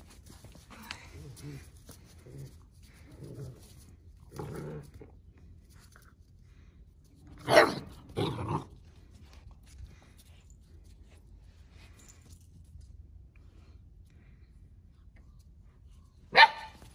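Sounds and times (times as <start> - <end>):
puppies play-growling: 0.8 - 5.4, 7.3 - 9.3
dog barks: 7.4 - 8.3, 16.3 - 16.8.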